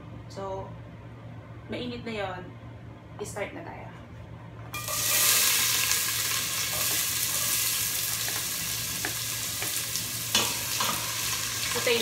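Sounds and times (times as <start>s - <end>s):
onion sizzling in hot oil: 4.8s - 12.0s
utensil tapping pot: 8.2s - 11.0s.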